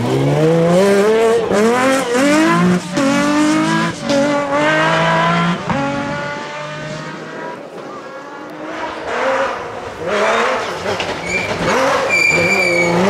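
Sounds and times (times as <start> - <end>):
rally car engine accelerating: 0.0 - 13.0.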